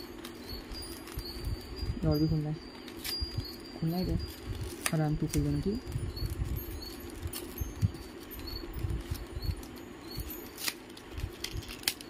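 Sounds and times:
blister pack tearing and crinkling: 4.2 - 12.0.

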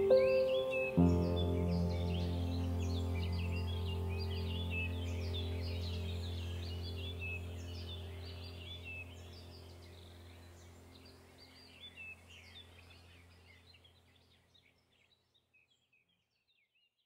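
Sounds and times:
low steady drone: 0.0 - 13.5
small birds chirping: 0.0 - 17.0.

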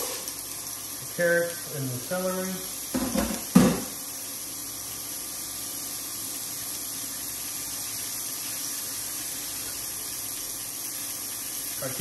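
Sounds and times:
vegetables sizzling in hot oil: 0.0 - 12.0
tap water running into sink: 2.9 - 3.9.

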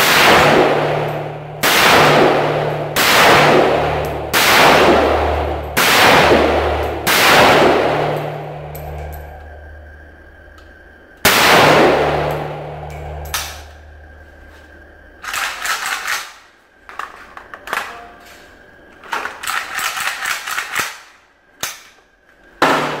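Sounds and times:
rifle shot echoing: 0.0 - 9.2, 11.3 - 14.0.

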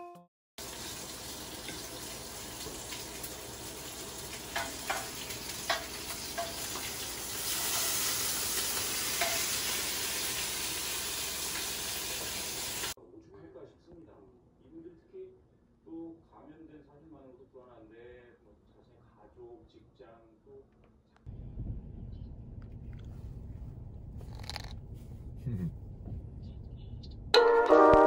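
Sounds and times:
pork sizzling and popping: 0.6 - 13.0, 24.3 - 24.7.

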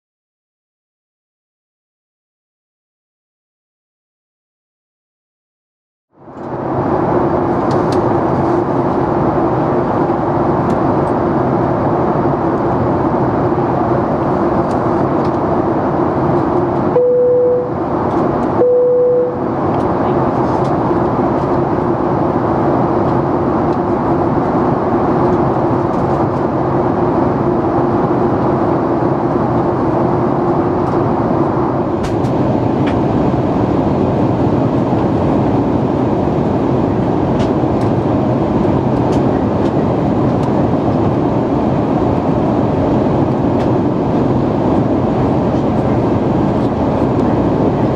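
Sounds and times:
airflow rushing in plane cabin: 6.1 - 47.9
jet engines: 6.2 - 47.9
steady cabin hum: 6.4 - 47.9
short steady tones: 16.9 - 17.8, 18.6 - 19.4.

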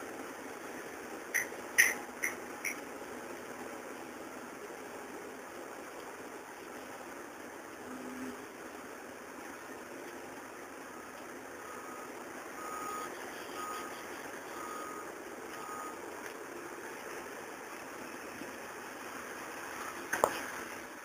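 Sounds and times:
steady mechanical noise: 0.0 - 21.0
reversing alarm beeping: 11.0 - 16.0.

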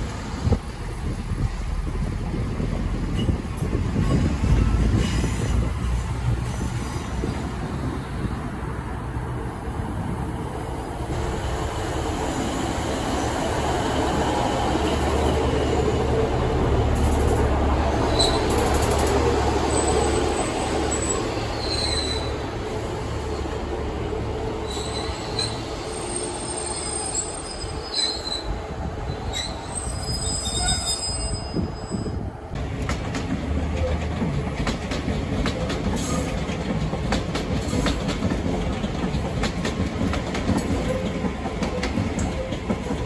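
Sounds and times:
train rumbling past: 0.0 - 43.0
train wheel squeals: 3.1 - 7.2, 17.1 - 23.5, 24.6 - 32.3, 35.9 - 36.4, 40.6 - 43.0
wheels clicking over rail joints: 32.6 - 43.0.

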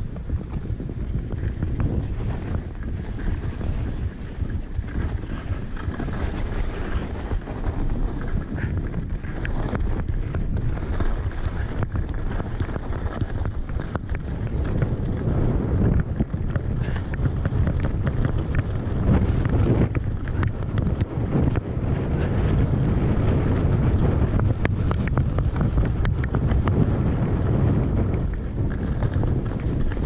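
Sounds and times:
skis scraping over snow: 0.0 - 30.0
wind buffeting microphone: 0.0 - 30.0.

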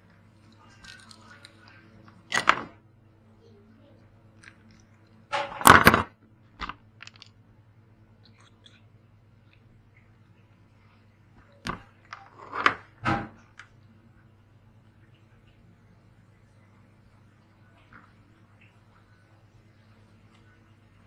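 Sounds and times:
crunching and clicking handling: 0.4 - 2.7, 6.6 - 7.4.

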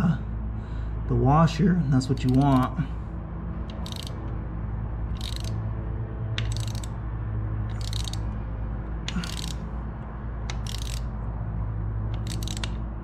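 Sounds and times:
steady low hum: 0.0 - 13.0
socket ratchet clicking: 2.0 - 2.8, 3.6 - 4.4, 5.1 - 5.7, 6.3 - 7.0, 7.6 - 11.4, 12.0 - 13.0.

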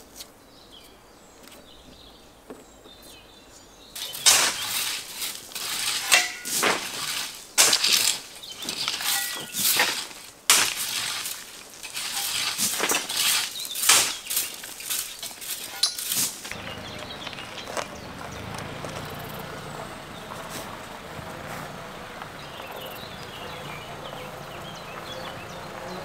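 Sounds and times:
rakes and shovels scraping gravel: 4.0 - 26.0
small vehicle engine running: 16.5 - 26.0.

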